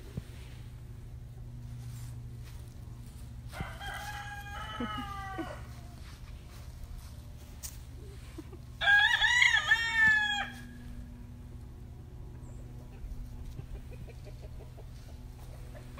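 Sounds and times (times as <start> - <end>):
steady low hum: 0.0 - 15.9
rooster crowing: 3.5 - 6.0, 8.8 - 10.8.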